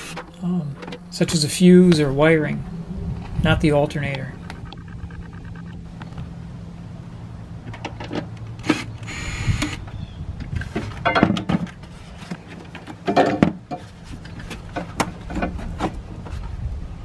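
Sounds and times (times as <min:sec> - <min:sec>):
low hum: 0:00.0 - 0:10.7.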